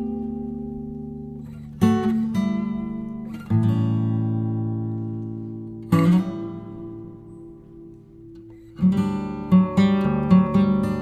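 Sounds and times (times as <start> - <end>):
acoustic guitar chords and plucking: 0.0 - 11.0.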